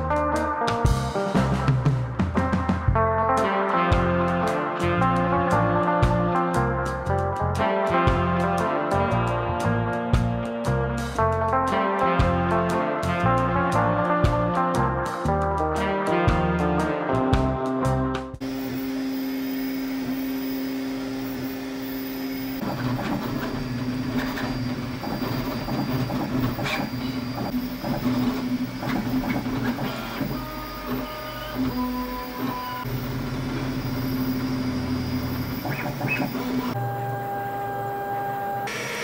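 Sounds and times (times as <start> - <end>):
printer humming: 18.4 - 39.0.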